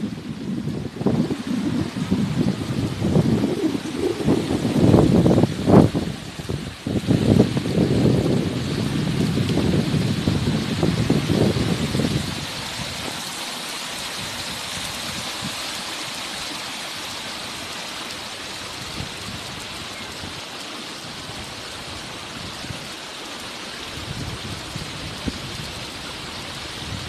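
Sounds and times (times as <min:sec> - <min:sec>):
wind bumps on microphone: 0:00.0 - 0:13.2
river water over rocks: 0:00.0 - 0:27.0.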